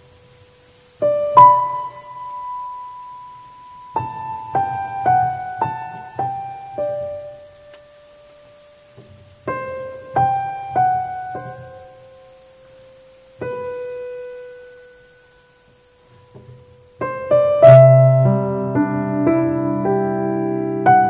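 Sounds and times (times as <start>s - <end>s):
solo piano music: 0.0s - 21.0s.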